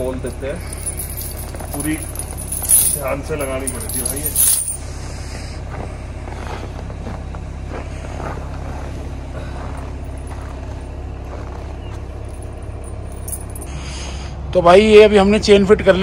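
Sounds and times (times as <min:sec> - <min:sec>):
snow chain clinks: 0:00.0 - 0:04.8, 0:12.3 - 0:13.7
diesel engine idling: 0:00.0 - 0:16.0.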